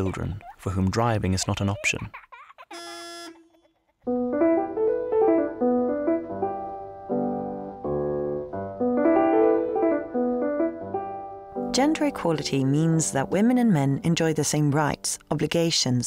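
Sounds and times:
piano music: 4.1 - 15.5.

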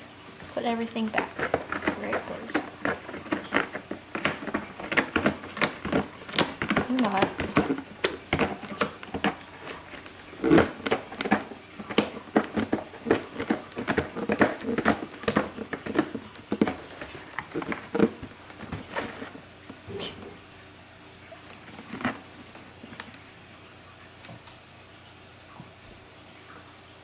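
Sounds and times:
toys and packaging rustling: 0.4 - 20.0, 21.4 - 23.3.

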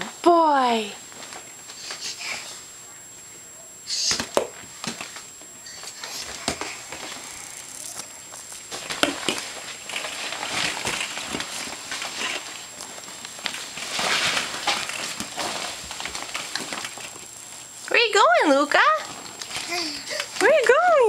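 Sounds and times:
inflatable vinyl crackling and rubbing: 8.7 - 17.3.

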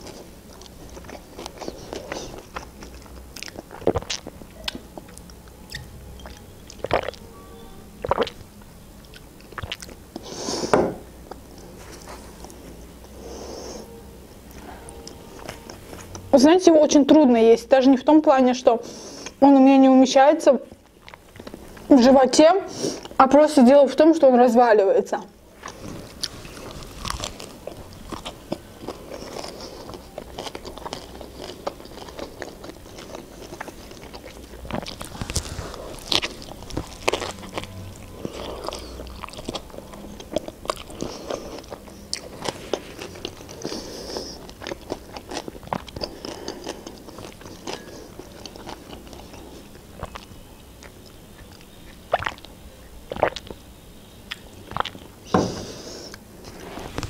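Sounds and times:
chewing with crisp crunches: 0.0 - 10.4, 20.7 - 22.0, 25.5 - 57.0.

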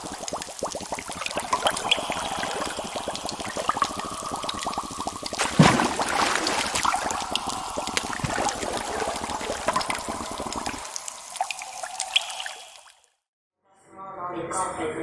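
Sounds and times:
water splashing along boat hull: 5.4 - 7.0.

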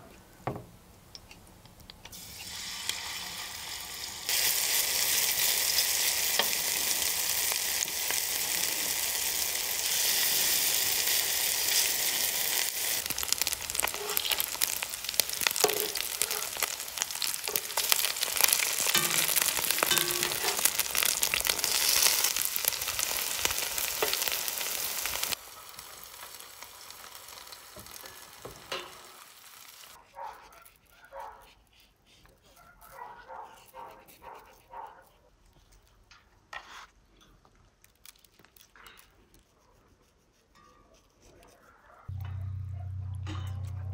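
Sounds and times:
liver frying in hot oil: 1.8 - 30.1.

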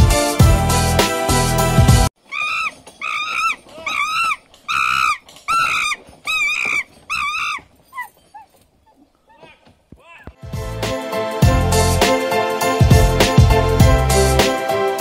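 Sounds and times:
footbridge squeaking: 2.2 - 10.4.

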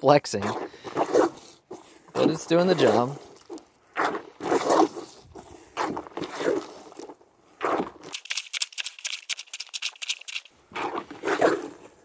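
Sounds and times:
crackle of fine clicks: 3.2 - 4.0.

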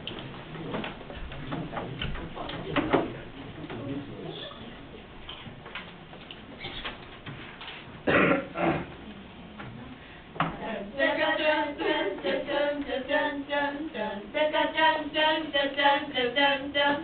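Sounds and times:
girls singing in unison: 10.4 - 17.0.

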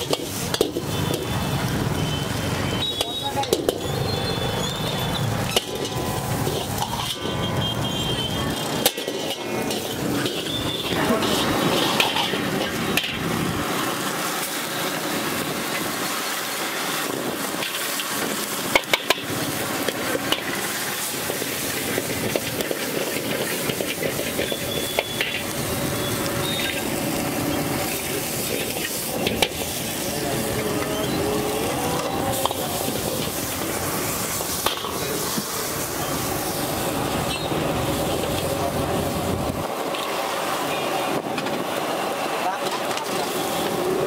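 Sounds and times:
onions sizzling in a wok: 0.0 - 44.0
ladle scraping wok: 2.8 - 14.6, 17.4 - 39.1.

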